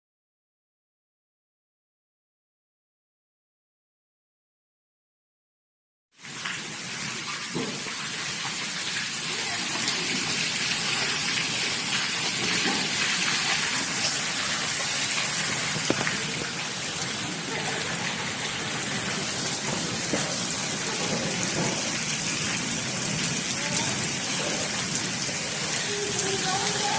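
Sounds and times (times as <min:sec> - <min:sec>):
heavy rain splashing on water: 0:06.2 - 0:26.9.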